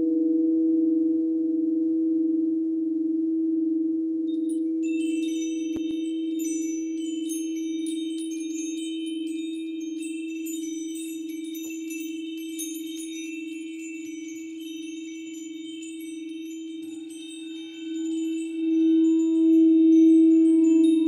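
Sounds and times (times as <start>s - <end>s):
chimes tinkling: 4.3s - 21.0s
singing bowl ringing: 4.3s - 21.0s.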